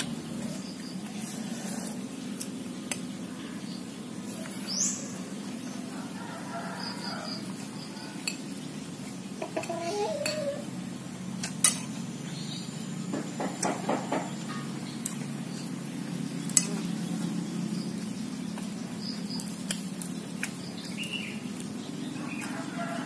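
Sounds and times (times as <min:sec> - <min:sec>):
spoon clinking against plates: 0:09.5 - 0:10.6.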